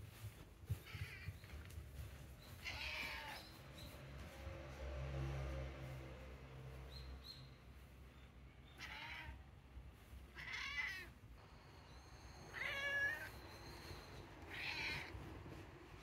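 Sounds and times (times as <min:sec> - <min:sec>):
cat meowing: 0:02.6 - 0:03.6, 0:08.7 - 0:09.5, 0:10.3 - 0:11.2, 0:12.4 - 0:13.6, 0:14.4 - 0:15.3.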